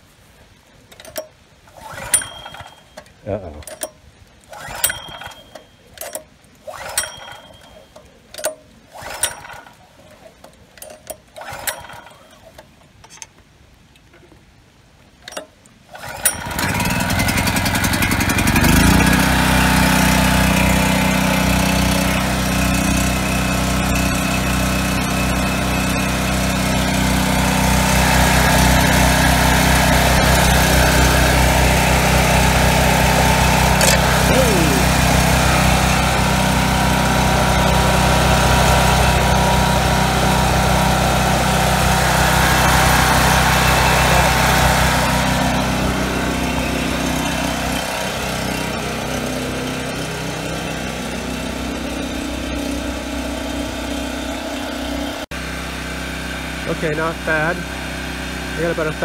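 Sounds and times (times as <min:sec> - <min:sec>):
recoil starter clicks: 0:00.9 - 0:13.4, 0:15.2 - 0:17.2, 0:33.6 - 0:35.1
generator engine running: 0:01.8 - 0:03.8, 0:04.5 - 0:05.8, 0:10.8 - 0:12.3, 0:16.0 - 0:59.0.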